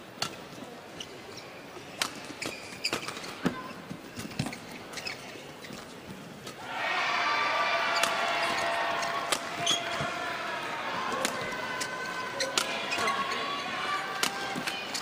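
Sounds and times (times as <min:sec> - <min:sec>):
shoes squeaking on court floor: 0:01.0 - 0:06.6, 0:09.5 - 0:10.1, 0:11.4 - 0:15.0
racket striking shuttlecock: 0:09.3 - 0:10.0.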